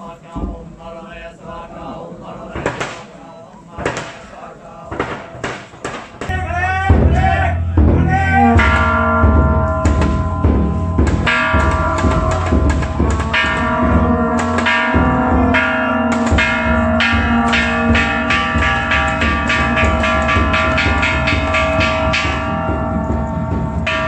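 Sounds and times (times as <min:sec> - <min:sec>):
low drum beating: 0:04.9 - 0:24.0
metal bells ringing: 0:06.3 - 0:24.0.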